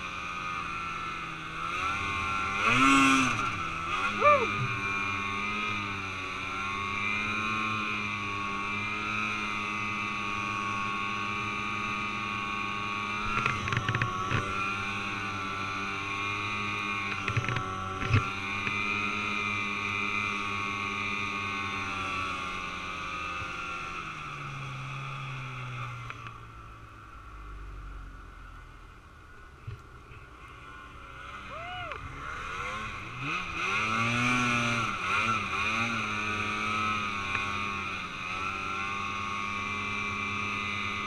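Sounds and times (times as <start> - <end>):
snowmobile engine running: 0.0 - 26.1, 30.2 - 41.0.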